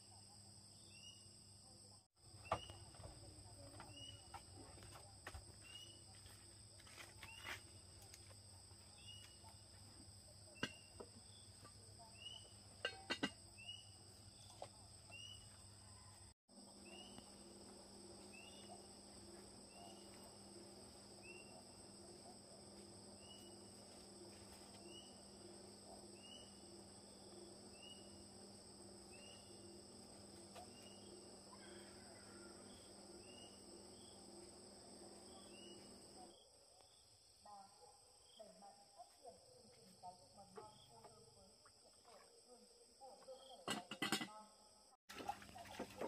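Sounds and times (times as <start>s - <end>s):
insect chorus drone: 16.6s - 37.4s.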